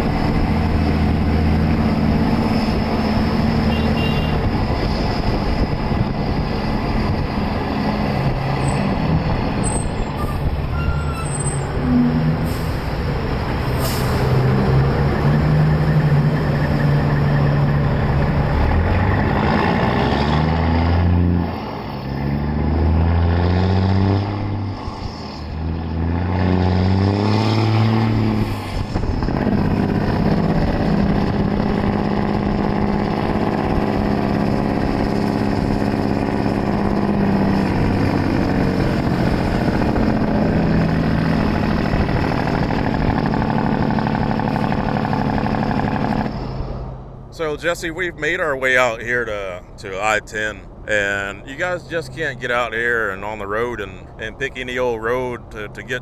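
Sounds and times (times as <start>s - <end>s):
diesel truck engine accelerating: 0.0s - 56.0s
air brake hiss: 12.4s - 12.9s, 13.7s - 14.4s.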